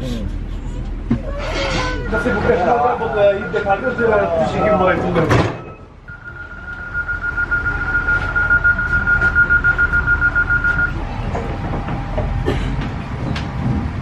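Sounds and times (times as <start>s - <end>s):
train rumble: 0.0s - 14.0s
pulsing door warning beep: 5.6s - 11.0s.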